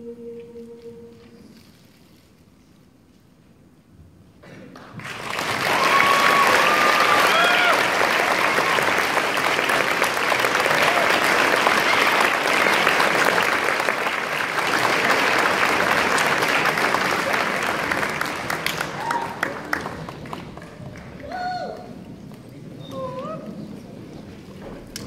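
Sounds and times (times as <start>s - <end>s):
audience applauding: 4.7s - 22.6s
people shouting and cheering: 5.6s - 9.0s, 18.8s - 19.6s, 20.8s - 22.1s.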